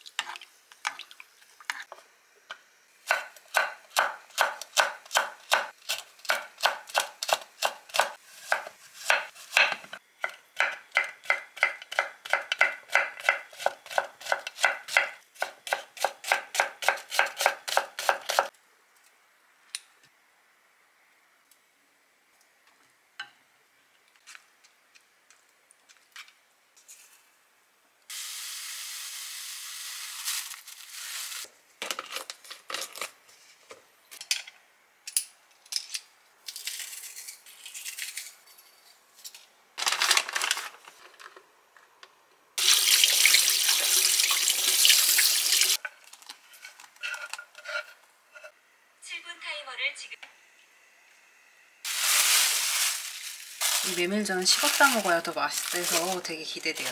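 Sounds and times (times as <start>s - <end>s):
water running: 42.6s - 45.8s.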